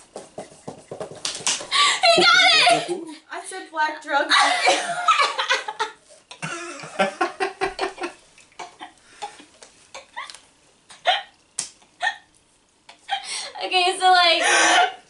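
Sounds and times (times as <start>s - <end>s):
people laughing: 1.8s - 3.2s, 4.3s - 8.2s.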